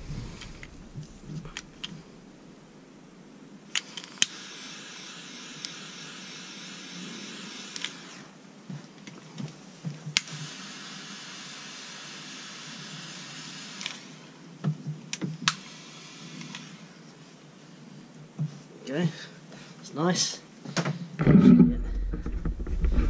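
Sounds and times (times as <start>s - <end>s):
torch flame hissing: 0.0s - 2.4s, 3.7s - 8.4s, 10.2s - 14.5s, 15.1s - 17.2s
butane torch clicking alight: 3.7s - 8.3s, 10.1s - 14.2s, 15.0s - 17.0s.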